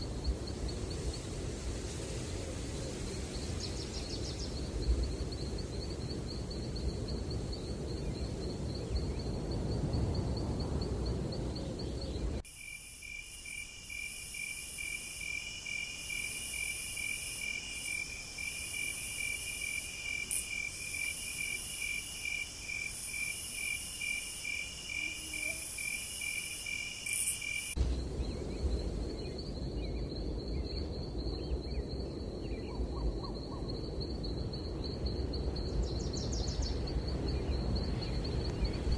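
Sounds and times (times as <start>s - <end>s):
crickets trilling: 0.0s - 38.9s
insect chirping: 0.0s - 38.9s
high insect buzz: 12.4s - 27.8s.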